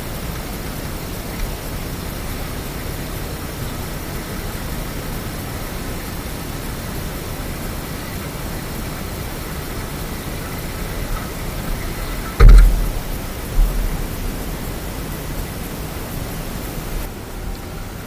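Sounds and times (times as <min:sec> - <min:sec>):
wind rushing on microphone: 0:04.2 - 0:17.1.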